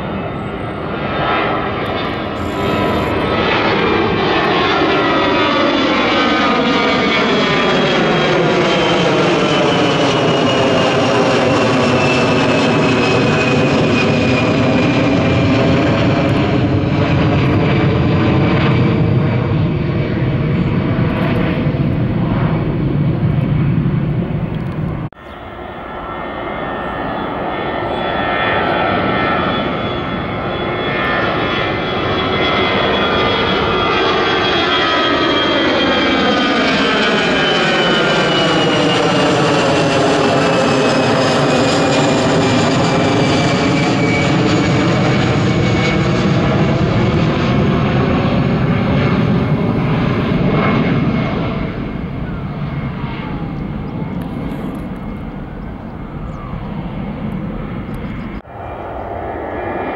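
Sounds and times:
jet airliner climbing out: 26.0 - 59.9.

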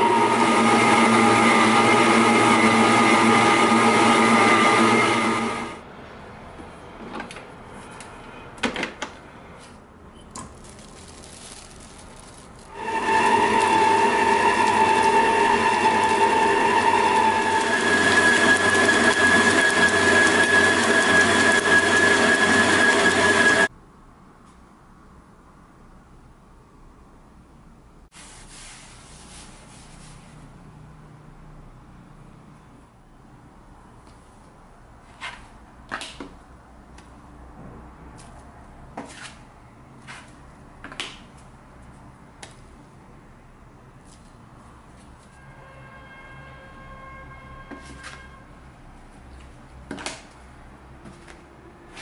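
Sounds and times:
stand mixer motor whine: 0.0 - 5.8, 12.7 - 23.7.

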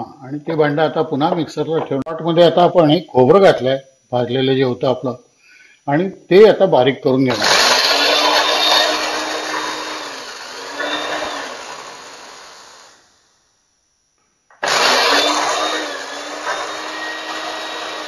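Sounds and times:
mixer grinder motor running: 7.3 - 13.0, 14.5 - 18.0.

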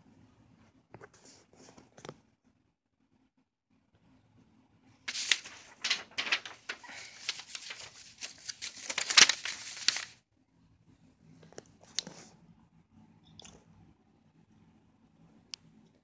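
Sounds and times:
glossy paper pages rustling: 5.1 - 10.2.

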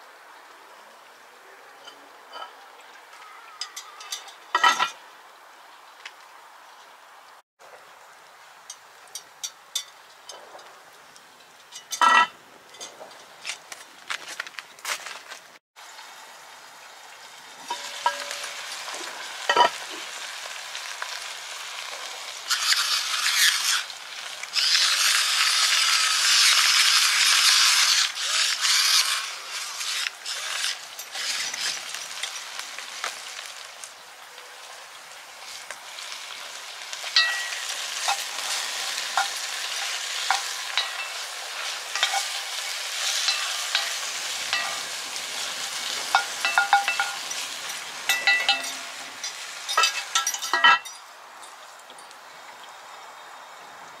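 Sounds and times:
metal clinks against pot: 11.7 - 13.0, 17.7 - 18.6, 19.5 - 19.8, 37.2 - 38.5, 39.1 - 44.9, 46.1 - 51.1
food sizzling in a pot: 15.8 - 51.8.

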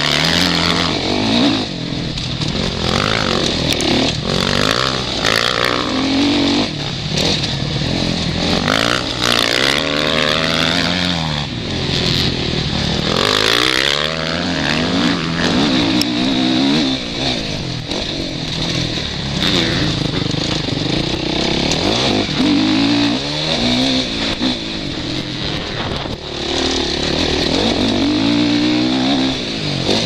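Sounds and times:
motocross engine revving: 0.0 - 30.0
wind rushing over microphone: 0.0 - 30.0.

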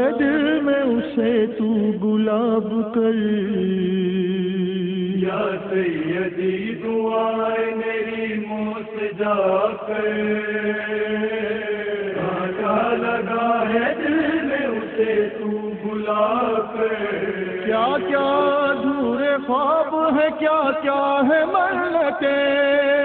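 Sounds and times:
wordless vocal chanting: 0.0 - 23.0.

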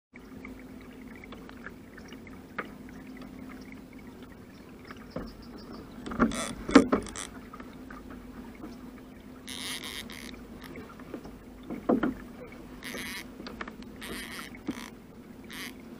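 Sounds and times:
steady low hum: 0.2 - 15.9
fishing reel drag rattling clicks: 9.5 - 10.8, 12.8 - 15.8.

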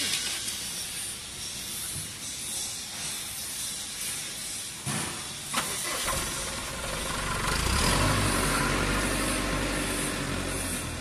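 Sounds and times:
engine humming: 5.5 - 11.0.

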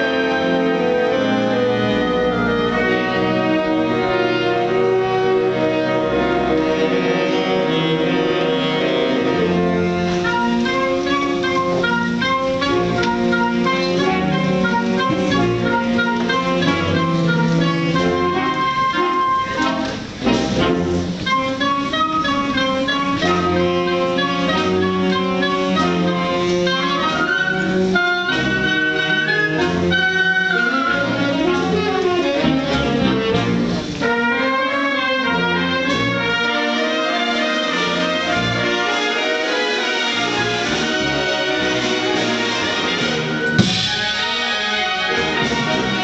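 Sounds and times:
concert wind band playing: 0.0 - 46.0.

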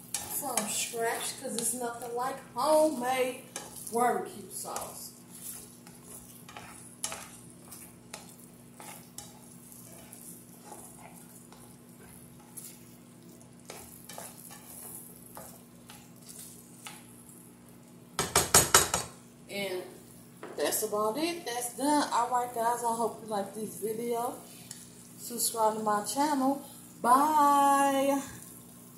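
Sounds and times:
utensils scraping nonstick pan: 0.0 - 17.2
sauce sizzling: 0.0 - 28.9
utensil knocking against pan: 18.2 - 19.1.

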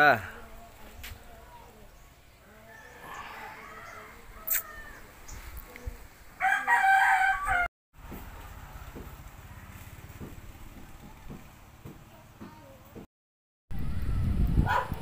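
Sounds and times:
rooster crowing: 2.4 - 5.1, 6.4 - 7.7.

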